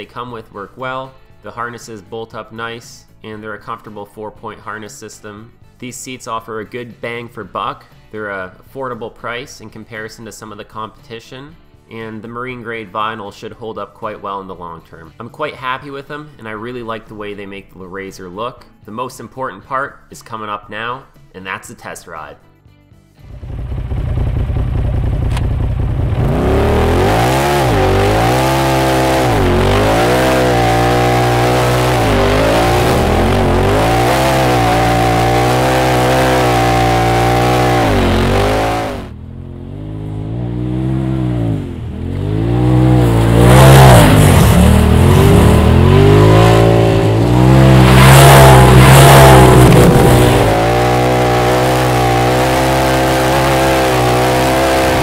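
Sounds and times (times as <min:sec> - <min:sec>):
engine revving and accelerating: 0:23.3 - 0:55.0.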